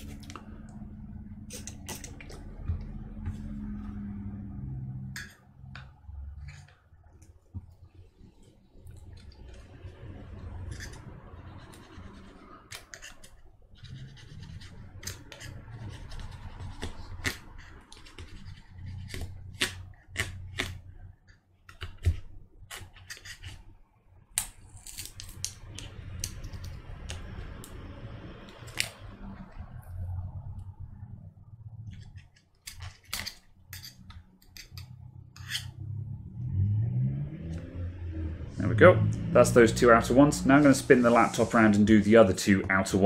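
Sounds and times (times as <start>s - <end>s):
low rumbling handling noise: 0.0s - 12.4s
prying tool scraping and clicking: 31.9s - 35.8s.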